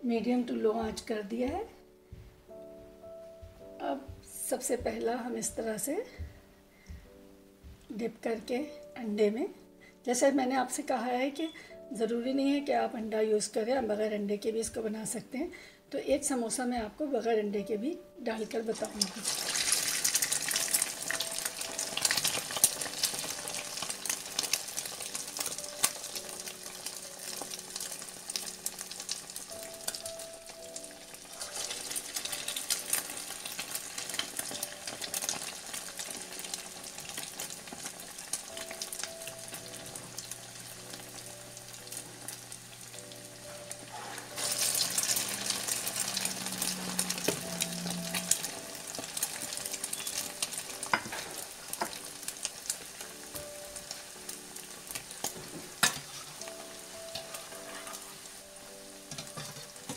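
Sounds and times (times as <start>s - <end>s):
oil sizzling and crackling: 18.7s - 59.9s.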